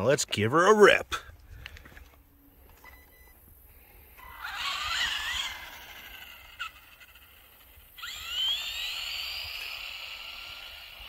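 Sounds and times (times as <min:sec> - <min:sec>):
electric motor whining: 0:04.1 - 0:11.0.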